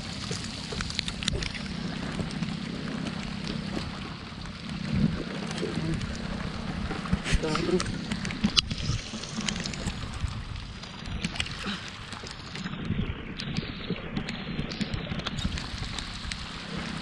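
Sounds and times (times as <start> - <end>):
water washing along a hull: 0.0 - 17.0
wind on microphone: 0.0 - 17.0
heavy rain on a wooden boat: 15.4 - 17.0.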